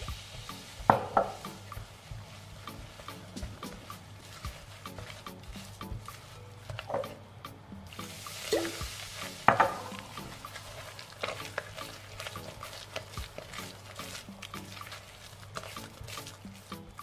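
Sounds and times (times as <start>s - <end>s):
water pouring into bowl: 7.9s - 17.0s.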